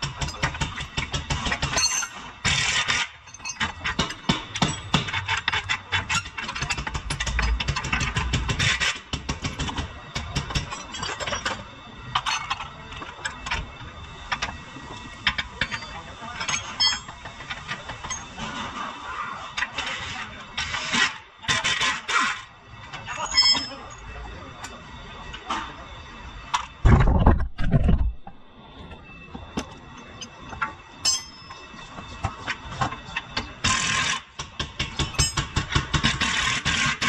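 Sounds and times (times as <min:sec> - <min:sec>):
metal tools clinking: 0:01.8 - 0:02.2, 0:15.6 - 0:17.1, 0:23.2 - 0:24.0, 0:30.2 - 0:31.6
pneumatic impact wrench hammering: 0:33.6 - 0:37.0.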